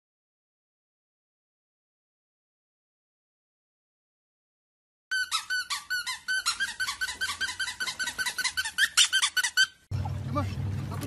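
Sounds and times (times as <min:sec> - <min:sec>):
squeaker squeaking rapidly: 0:05.1 - 0:09.9.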